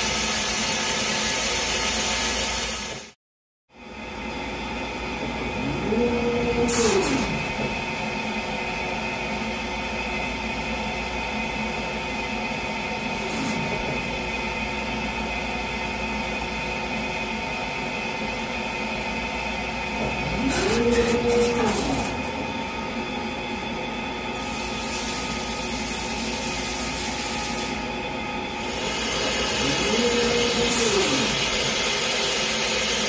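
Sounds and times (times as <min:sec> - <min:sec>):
laser engraver humming and whining: 0:04.3 - 0:16.0, 0:19.1 - 0:33.0
motor whirring: 0:28.6 - 0:31.9.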